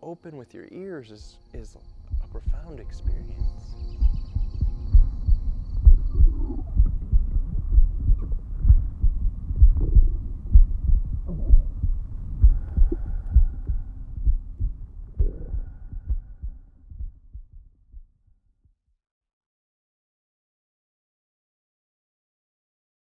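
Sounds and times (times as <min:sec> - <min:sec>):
deep irregular thumps: 0:01.5 - 0:17.7.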